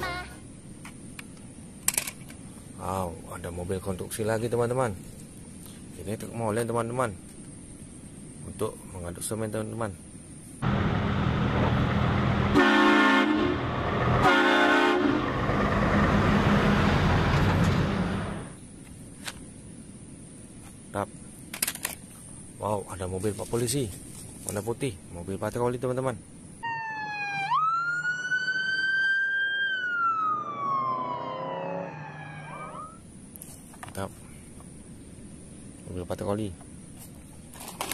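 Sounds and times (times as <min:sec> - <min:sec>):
diesel engine running: 0:10.6 - 0:18.6
truck air horn blasts: 0:12.5 - 0:15.4
police siren wailing: 0:26.6 - 0:33.0.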